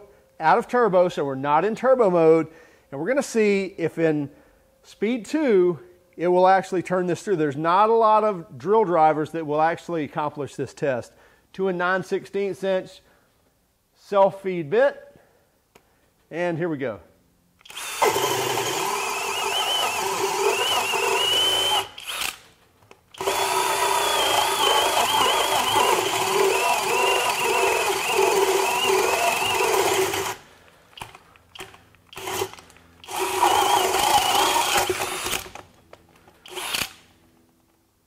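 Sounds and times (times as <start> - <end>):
power drill whining through wood: 17.6 - 22.5, 23.1 - 30.4, 31.0 - 35.7, 36.4 - 37.0.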